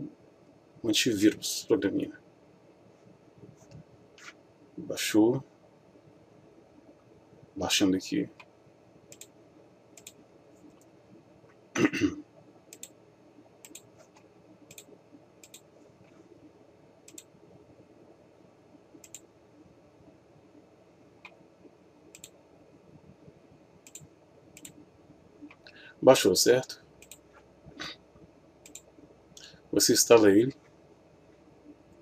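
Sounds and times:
computer mouse clicking: 9.1s - 9.4s, 10.0s - 10.9s, 12.7s - 13.0s, 13.6s - 15.7s, 17.0s - 17.3s, 19.0s - 19.3s, 22.1s - 22.4s, 23.8s - 24.8s, 27.0s - 27.4s, 28.6s - 28.9s.

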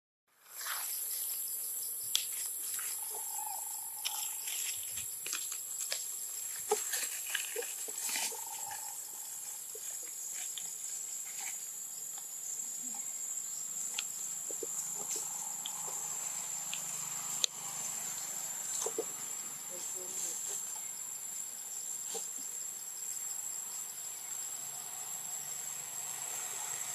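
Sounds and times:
insects droning: 0.4s - 26.9s
rustling leaves and snapping twigs: 2.1s - 12.3s
faint animal calls: 2.8s - 4.8s, 6.6s - 10.6s, 14.4s - 17.9s.

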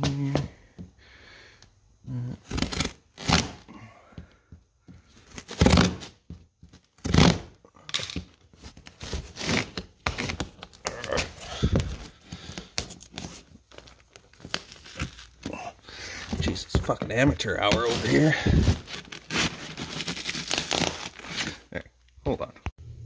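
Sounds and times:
knife slicing packing tape: 2.4s - 3.6s, 5.3s - 6.2s, 9.0s - 11.3s, 18.9s - 21.5s
cardboard scraping and crinkling: 8.5s - 21.6s.

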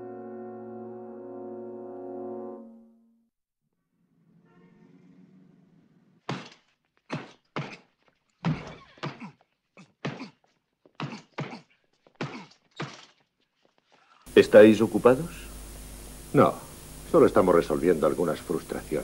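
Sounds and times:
punches thudding on bag: 6.3s - 7.8s.

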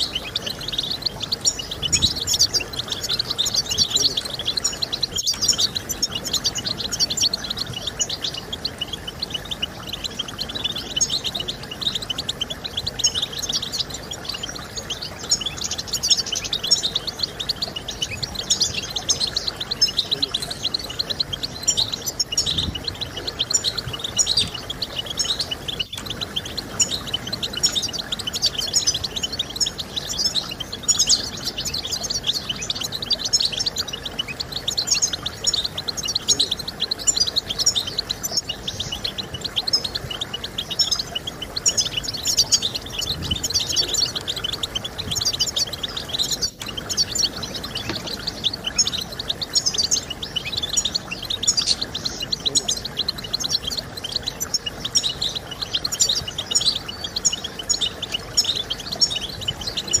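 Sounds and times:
goldfinch twittering song: 0.0s - 60.0s.

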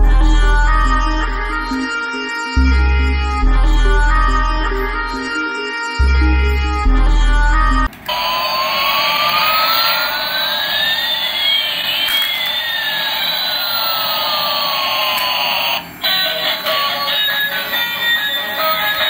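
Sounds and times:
toy jet engine sound effect: 8.1s - 19.0s.

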